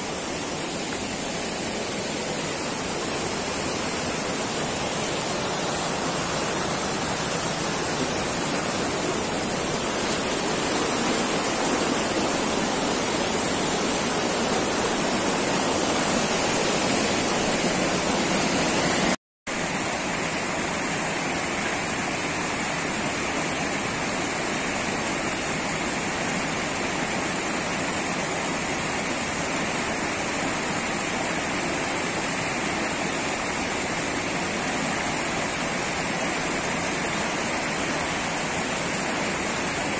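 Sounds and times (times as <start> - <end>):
river rapids rushing: 0.0 - 19.2.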